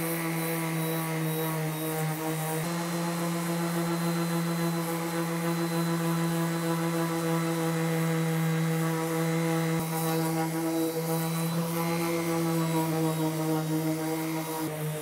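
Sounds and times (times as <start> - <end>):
orbital sander running: 0.0 - 15.0.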